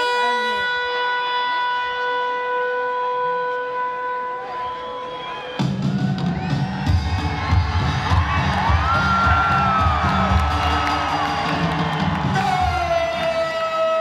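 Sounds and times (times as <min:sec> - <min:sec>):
crowd cheering and whooping: 0:04.3 - 0:14.0.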